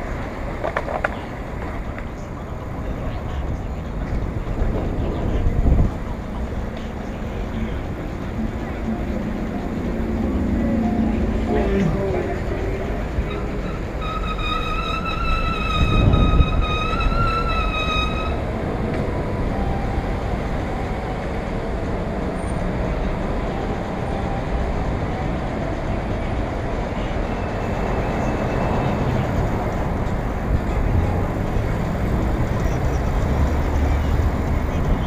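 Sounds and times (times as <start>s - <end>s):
traffic: 0.0s - 35.0s
wind rushing on camera: 0.0s - 35.0s
high wavering squeal: 7.4s - 18.6s.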